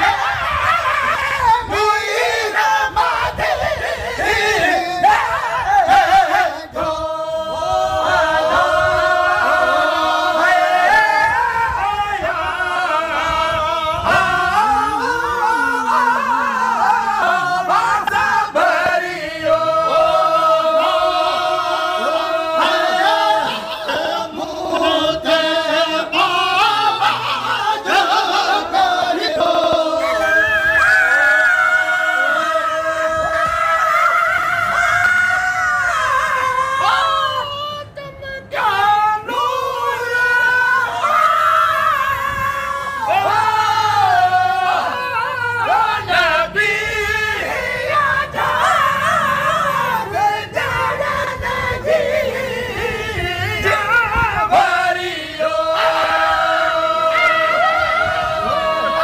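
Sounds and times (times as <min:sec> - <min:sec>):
men singing a devotional hymn: 0:00.0 - 0:59.0.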